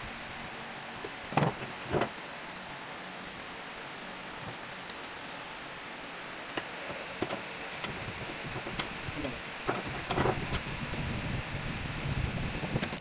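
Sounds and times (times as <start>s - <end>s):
metal parts clicking and knocking: 9.6s - 10.6s.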